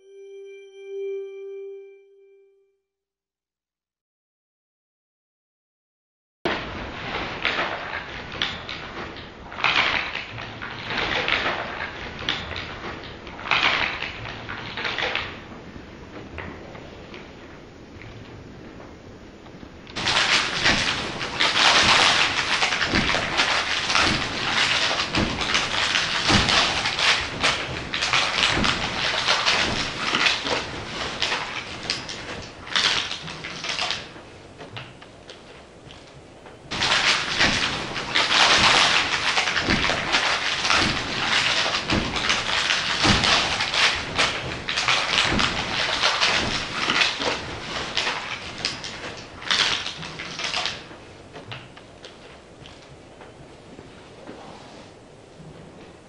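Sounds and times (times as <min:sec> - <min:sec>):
stiff paper rustling and crinkling: 0:20.0 - 0:54.9.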